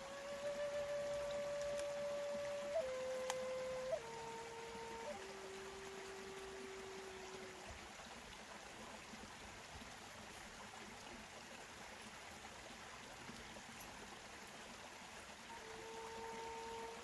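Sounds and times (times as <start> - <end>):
flute long low note: 0.0 - 7.8, 15.5 - 17.0
running water: 0.0 - 17.0.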